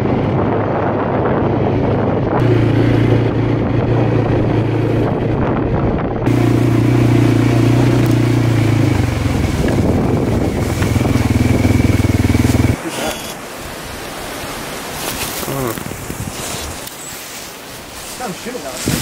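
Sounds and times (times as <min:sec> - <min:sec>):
atv engine running: 0:00.0 - 0:12.8.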